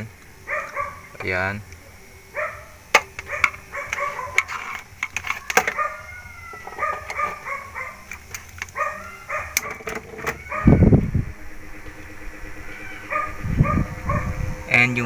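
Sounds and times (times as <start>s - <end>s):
dog yapping: 0.4s - 1.2s, 2.3s - 4.5s, 5.4s - 8.1s, 8.7s - 10.9s, 12.6s - 14.4s.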